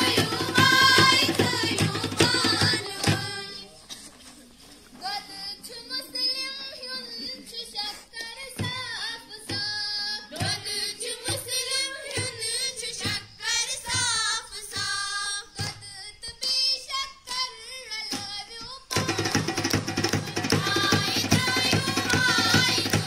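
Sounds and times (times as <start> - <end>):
steady struck beat: 0.0 - 3.4, 19.0 - 23.0
girls singing together: 0.0 - 3.7, 5.0 - 23.0.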